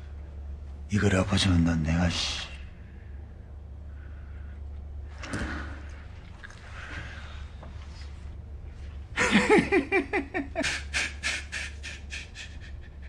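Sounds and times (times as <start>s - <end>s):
man laughing: 9.2s - 13.0s.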